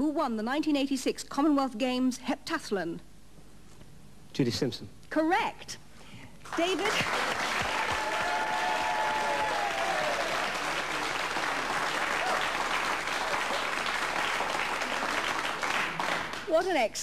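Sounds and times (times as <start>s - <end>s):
audience applauding: 6.5s - 16.5s.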